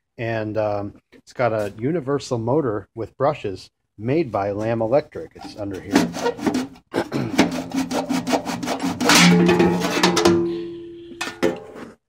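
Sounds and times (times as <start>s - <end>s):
scraping against vacuum housing: 5.3s - 10.2s.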